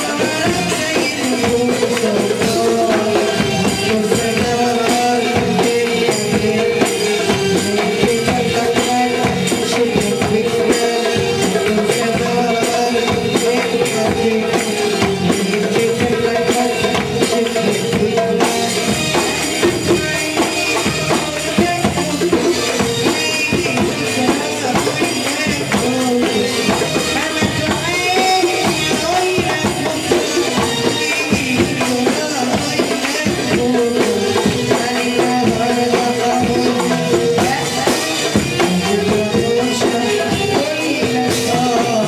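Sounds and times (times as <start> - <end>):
hand percussion beat: 0.0 - 42.0
held melody line: 0.0 - 42.0.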